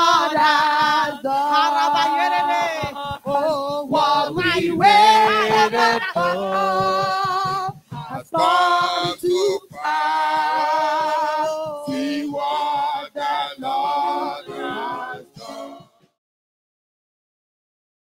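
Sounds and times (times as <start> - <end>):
woman singing into a microphone: 0.0 - 12.2
congregation singing: 0.0 - 16.1.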